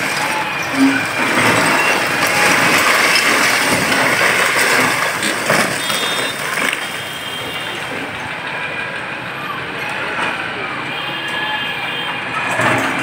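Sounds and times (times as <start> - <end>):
rubble crashing and tumbling: 0.0 - 7.2
excavator engine running: 0.0 - 11.0.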